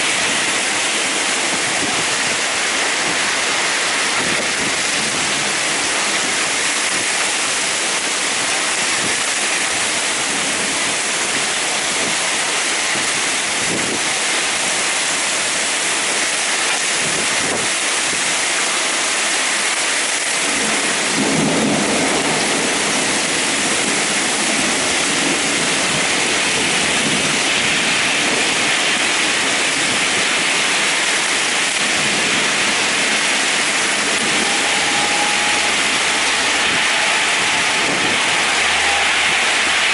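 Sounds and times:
heavy rain pouring: 0.0s - 39.9s
deep thunder rumble: 20.4s - 27.3s, 31.7s - 39.9s.

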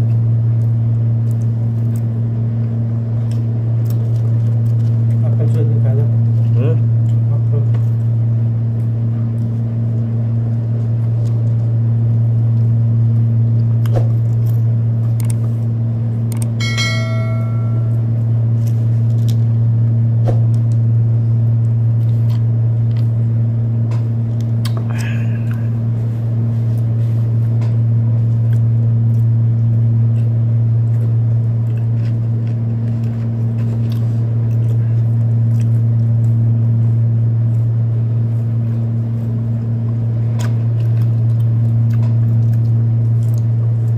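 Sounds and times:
chewing clicks: 0.0s - 5.7s, 12.4s - 15.5s, 16.3s - 16.6s, 24.3s - 25.6s, 28.4s - 36.4s, 40.3s - 43.9s
air conditioner hum: 0.0s - 43.9s
bell-like chime: 16.6s - 18.0s.

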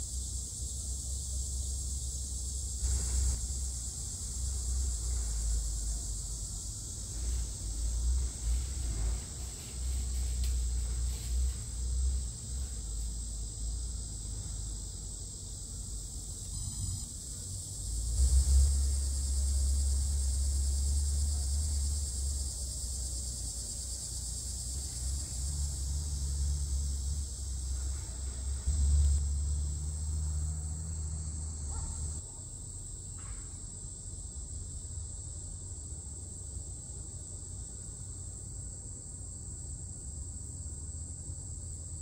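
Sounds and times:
low uneven rumble: 0.0s - 32.2s
high-pitched insect chorus: 0.0s - 42.0s.

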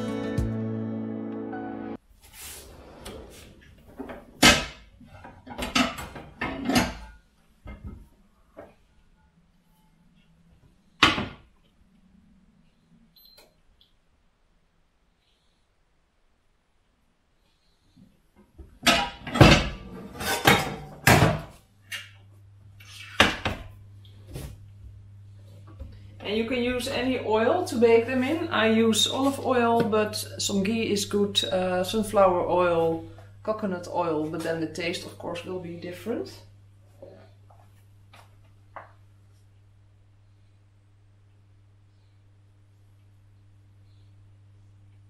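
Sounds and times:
low steady hum: 0.0s - 45.0s
pans clattering together: 18.8s - 21.5s.

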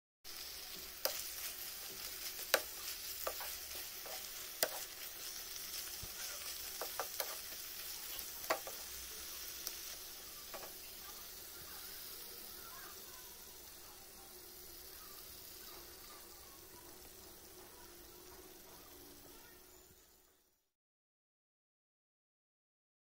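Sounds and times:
gravy sizzling in a pan: 0.2s - 20.7s
spatula clicking against pan: 2.4s - 5.0s, 6.0s - 7.6s, 8.4s - 8.9s.

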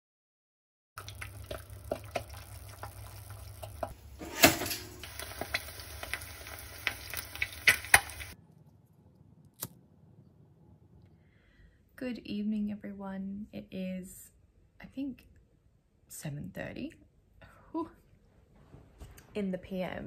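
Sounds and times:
eggs sizzling in a pan: 1.0s - 8.4s.

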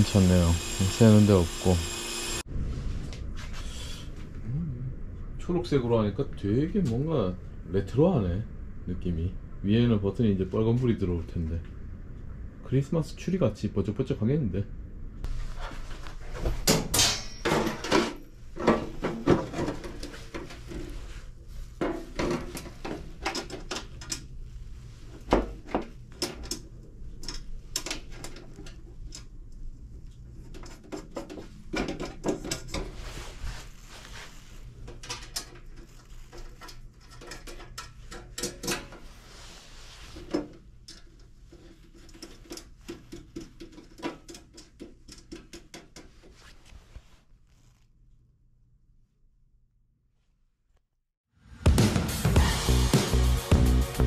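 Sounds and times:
faint low hum: 0.0s - 16.6s.

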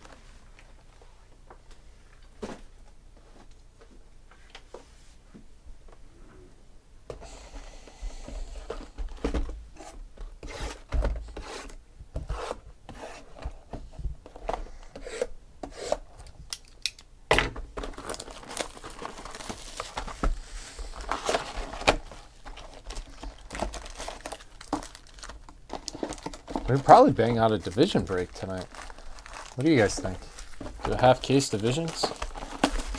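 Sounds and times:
plastic wrap crinkling and tearing: 17.8s - 32.9s.

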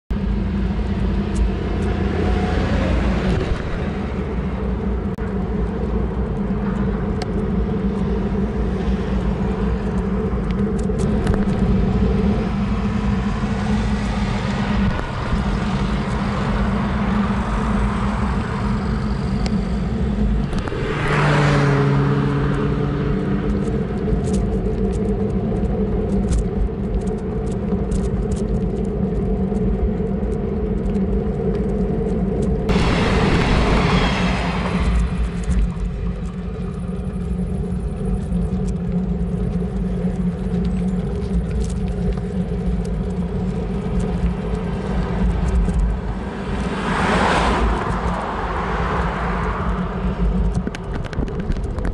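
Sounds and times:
road traffic passing: 0.2s - 26.4s, 29.0s - 51.9s
vehicle passing loudly: 19.6s - 24.0s, 32.7s - 36.4s, 44.8s - 50.5s.

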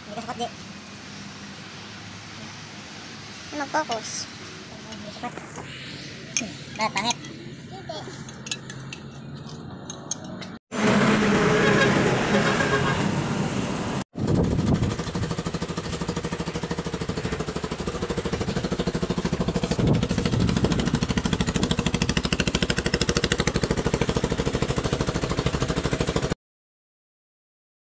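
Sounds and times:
motorcycle engine running: 14.2s - 26.4s.

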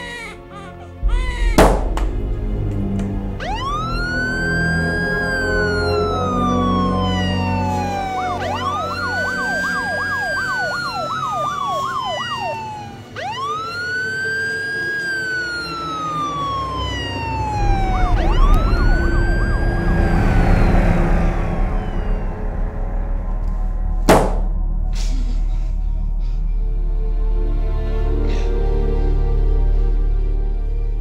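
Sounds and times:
deep low rumble: 1.0s - 5.9s, 16.4s - 27.9s
siren wailing: 3.2s - 24.6s
fast warbling siren yelp: 3.4s - 23.1s.

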